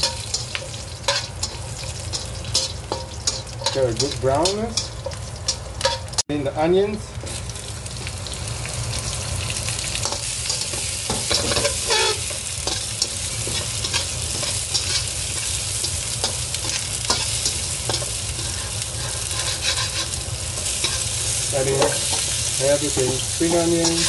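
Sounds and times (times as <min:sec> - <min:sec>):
metal spatula scraping a wok: 0:00.0 - 0:06.2, 0:10.0 - 0:22.4
food sizzling in hot oil: 0:00.0 - 0:24.0.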